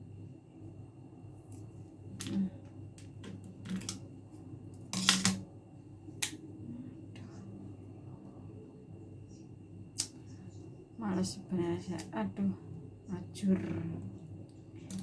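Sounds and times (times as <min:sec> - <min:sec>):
scissors cracking hard shells: 0:04.9 - 0:05.4.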